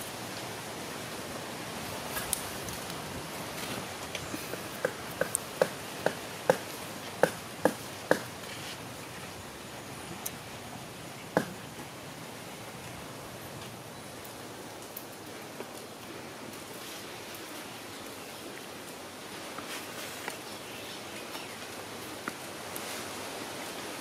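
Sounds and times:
soup simmering hiss: 0.0s - 24.0s.

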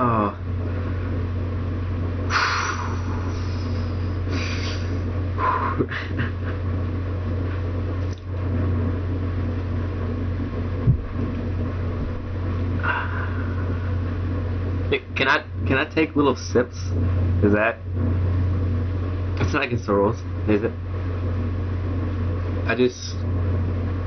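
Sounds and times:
steady low hum: 0.0s - 24.0s
person huffing and gasping: 12.8s - 13.9s.

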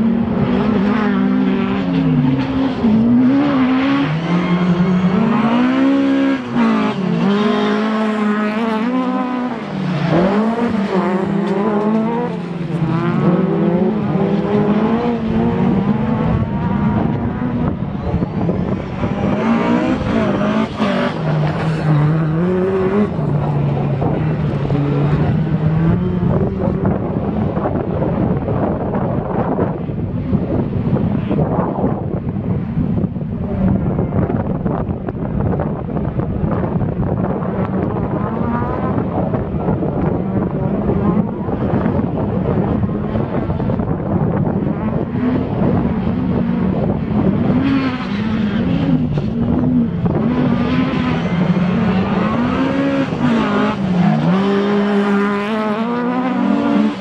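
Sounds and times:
race car engines passing: 0.0s - 57.0s.

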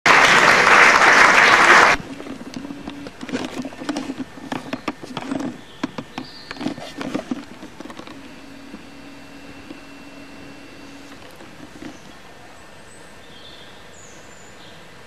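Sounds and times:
applause: 0.0s - 2.0s
low hum: 1.9s - 14.5s
faint knocks and clatter: 2.1s - 8.8s.

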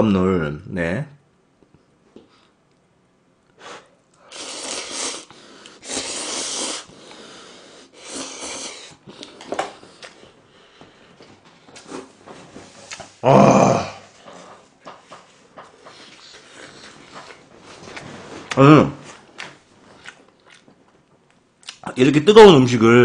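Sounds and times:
noisy slurping of noodles: 4.2s - 9.4s.

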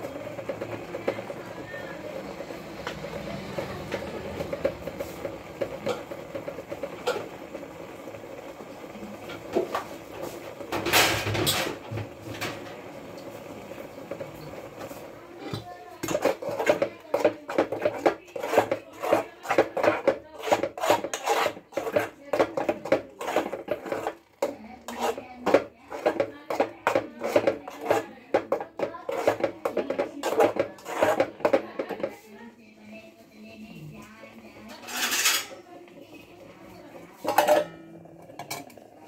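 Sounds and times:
metal spoon scraping steel pot: 16.0s - 32.1s, 34.6s - 35.6s, 37.1s - 38.8s.

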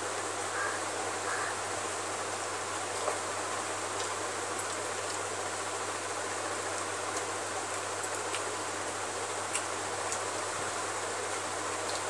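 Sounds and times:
room noise hiss: 0.0s - 12.0s
soft eating clicks: 6.7s - 8.6s, 9.3s - 10.4s, 11.8s - 12.0s.

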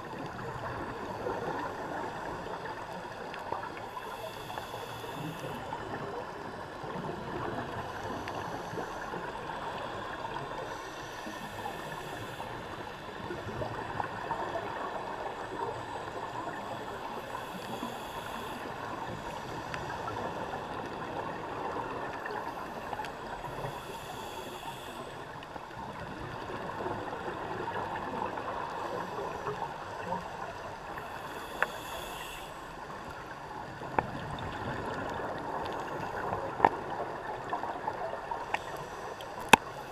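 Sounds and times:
underwater bubbling: 0.0s - 39.9s
regulator hiss: 3.8s - 5.8s, 7.9s - 13.6s, 16.0s - 21.2s, 22.4s - 25.4s, 30.8s - 33.0s.

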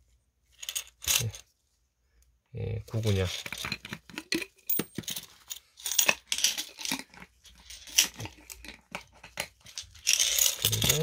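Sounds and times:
plastic coin tubes scraping: 0.5s - 1.5s, 3.0s - 11.0s
coins clicking: 10.0s - 11.0s.

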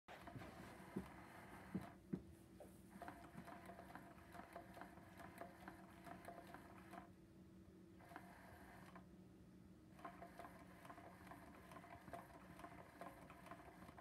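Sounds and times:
toy motor humming: 2.9s - 7.1s, 8.0s - 9.0s, 9.9s - 14.0s.

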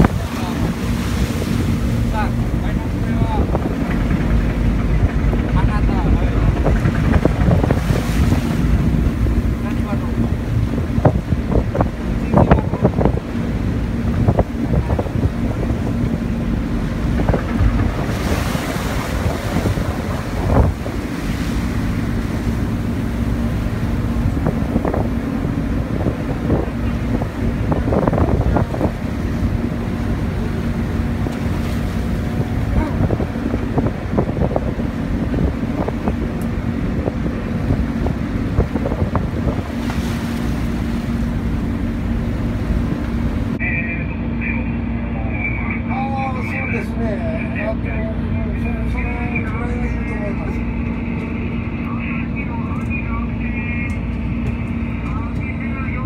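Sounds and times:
storm wind buffeting microphone: 0.0s - 43.6s
low engine hum: 0.0s - 56.0s
waves rushing along boat hull: 0.0s - 56.0s.

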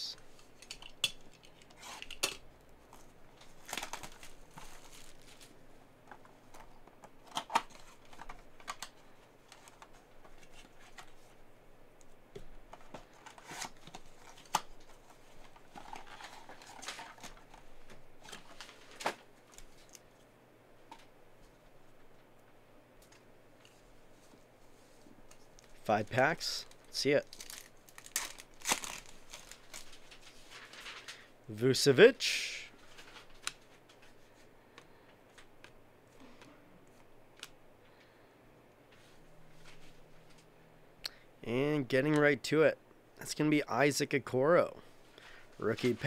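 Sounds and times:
cardboard rustling and crinkling: 2.9s - 5.6s, 12.8s - 20.0s, 26.6s - 31.2s
shrink wrap tearing: 26.6s - 31.2s.

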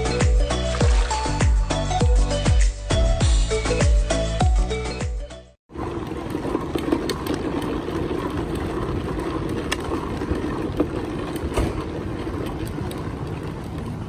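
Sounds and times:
street traffic: 5.7s - 14.0s
tram standing: 5.7s - 14.0s.

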